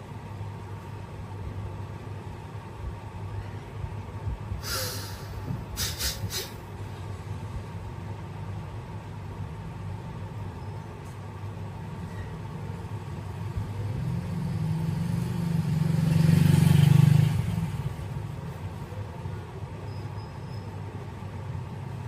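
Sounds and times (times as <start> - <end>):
vehicle engine rumble passing: 11.7 - 22.0.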